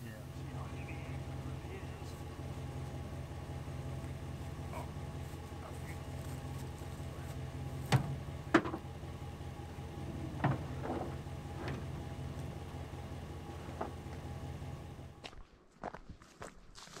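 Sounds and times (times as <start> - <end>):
steady low hum: 0.0 - 15.4
knocks against truck bed: 7.8 - 8.8.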